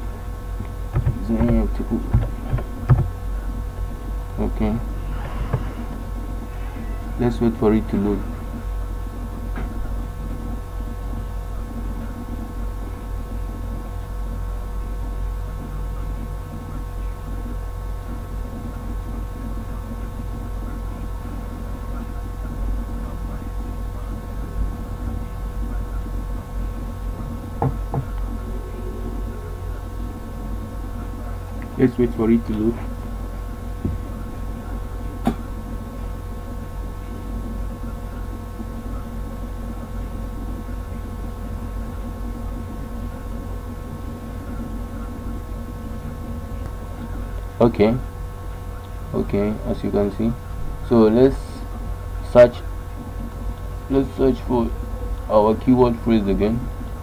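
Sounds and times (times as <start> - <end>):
low background rumble: 0.0 - 49.4
hum of held tones: 0.0 - 57.0
low rumble: 24.4 - 31.8.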